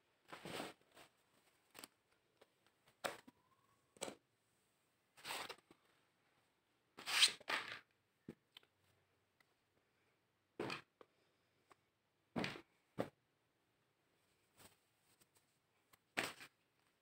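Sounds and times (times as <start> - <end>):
rustles and handling noises: 0.1 - 3.5, 14.2 - 17.0.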